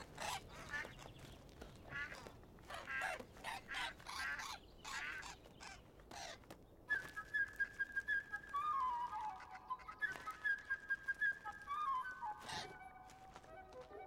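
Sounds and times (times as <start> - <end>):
bird and duck squawking: 0.0 - 6.4, 12.2 - 13.2.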